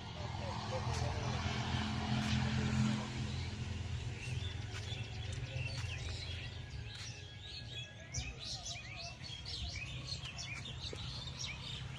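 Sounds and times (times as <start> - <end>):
steady low rumble: 0.0 - 7.9
small birds chirping: 0.0 - 11.9.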